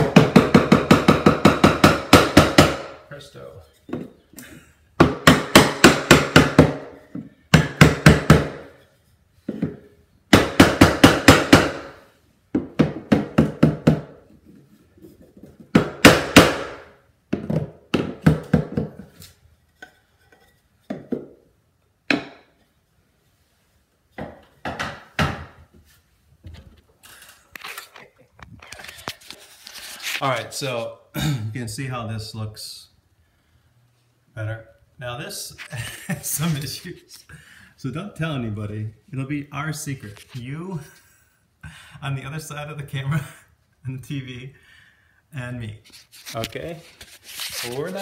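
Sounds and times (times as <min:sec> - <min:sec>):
hammer beating on wood block: 0:00.0 - 0:03.0, 0:05.0 - 0:08.7, 0:10.3 - 0:12.0, 0:12.6 - 0:14.2, 0:15.7 - 0:18.9.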